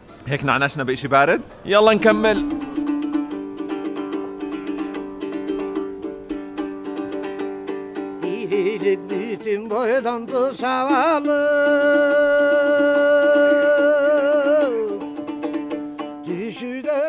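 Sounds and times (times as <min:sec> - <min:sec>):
plucked lute strumming: 0:01.4 - 0:17.0
man singing: 0:08.0 - 0:15.4, 0:16.2 - 0:17.0.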